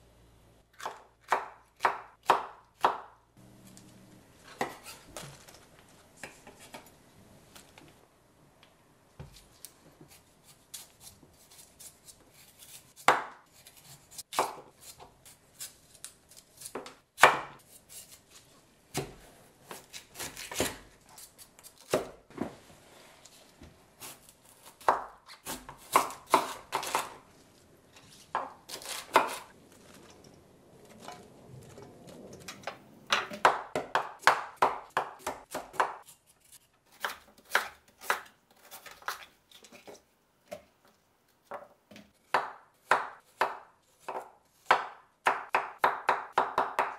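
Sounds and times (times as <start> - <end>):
knife chopping on wooden board: 16.6 - 17.6, 18.9 - 20.8, 24.0 - 27.2, 33.1 - 36.0, 41.5 - 46.9.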